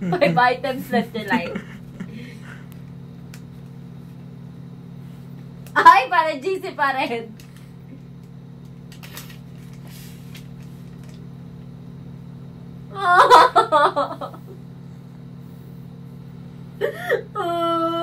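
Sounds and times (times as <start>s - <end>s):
steady low hum: 0.0s - 18.0s
paper card rustling: 8.9s - 11.2s
woman crying: 12.9s - 14.2s, 16.8s - 18.0s.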